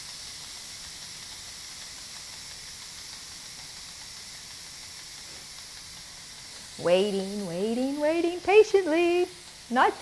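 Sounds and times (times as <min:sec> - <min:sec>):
pressure cooker steam hissing: 0:00.0 - 0:10.0.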